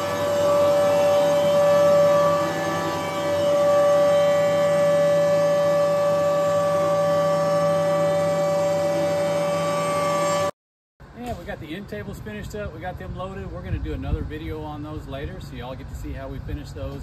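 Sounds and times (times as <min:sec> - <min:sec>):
machinery high-pitched whine: 0:00.0 - 0:10.6
low machine hum: 0:00.0 - 0:17.0.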